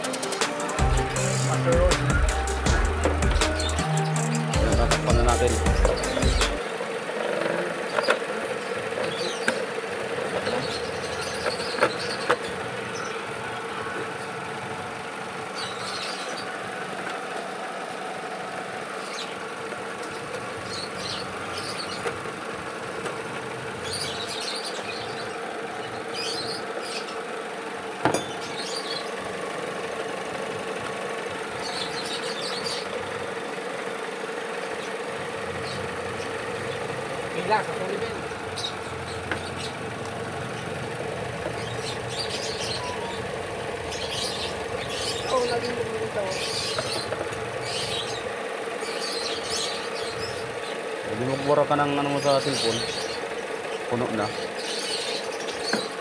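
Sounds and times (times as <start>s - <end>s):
car engine idling: 0.0s - 56.0s
faint high squeaks: 42.7s - 43.3s.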